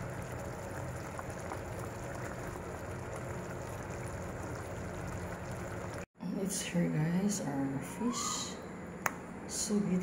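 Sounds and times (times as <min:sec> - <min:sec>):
sauce bubbling in a pan: 0:00.0 - 0:06.1.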